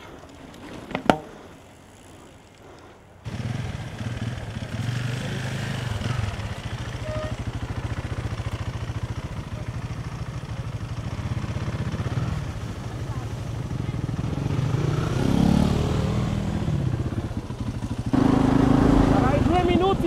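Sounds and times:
small engine running: 1.8s - 15.6s, 17.9s - 20.0s.

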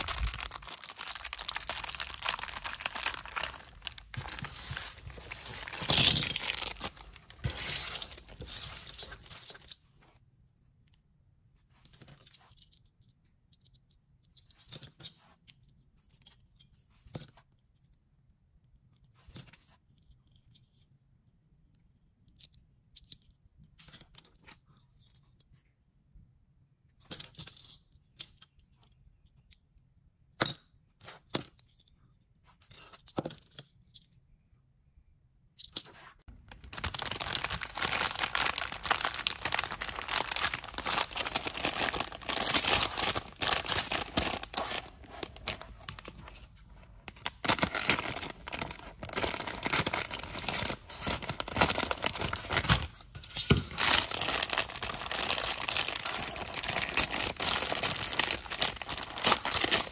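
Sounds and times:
plastic bag crinkling: 0.0s - 9.4s, 36.5s - 59.9s.

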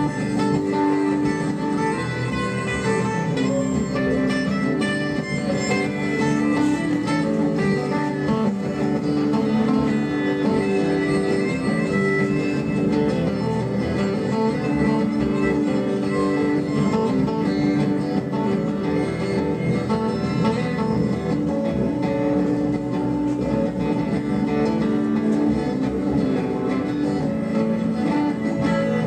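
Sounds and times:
acoustic guitar playing: 0.0s - 29.0s.

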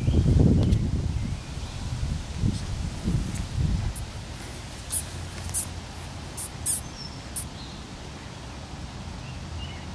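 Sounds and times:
mouse squeaking: 6.4s - 7.5s.

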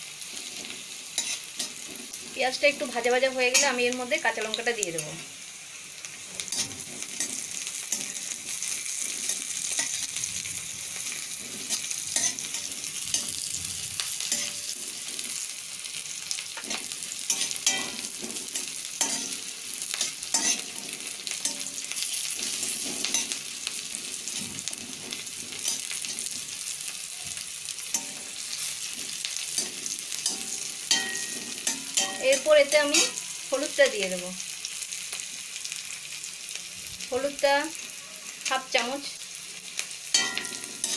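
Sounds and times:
onions sizzling in hot oil: 0.0s - 40.9s
metal spatula scraping a pan: 0.2s - 3.9s, 6.2s - 15.5s, 16.5s - 26.6s, 27.8s - 33.5s, 40.1s - 40.9s.

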